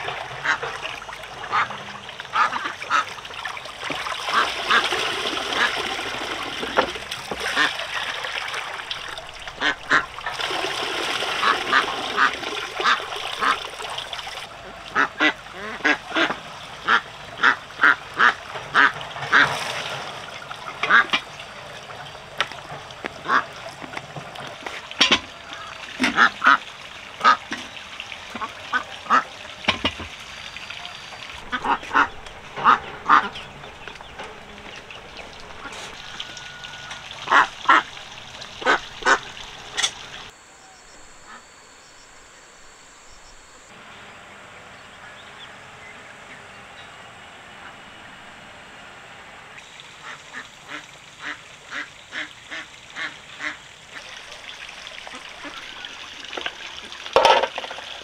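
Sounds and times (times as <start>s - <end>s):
ducks quacking: 0.0s - 13.7s, 14.4s - 21.8s, 23.0s - 24.0s, 24.7s - 30.0s, 30.6s - 40.3s, 50.0s - 54.4s, 55.0s - 56.5s
water splashing: 0.0s - 40.4s, 49.5s - 58.0s.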